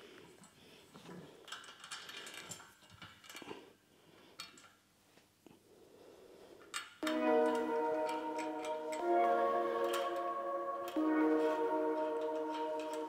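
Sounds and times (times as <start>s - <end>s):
light clicks of fittings: 4.4s - 4.8s.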